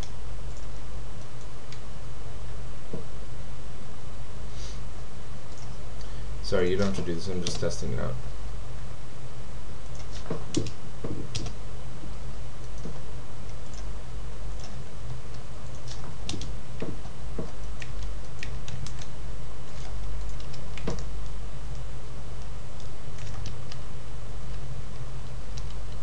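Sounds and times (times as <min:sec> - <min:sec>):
steady low hum: 0:00.0 - 0:26.0
keyboard and mouse clicks: 0:06.8 - 0:07.7, 0:09.9 - 0:11.6, 0:12.6 - 0:13.9, 0:14.6 - 0:19.1, 0:19.8 - 0:21.8, 0:22.8 - 0:23.8, 0:25.2 - 0:26.0.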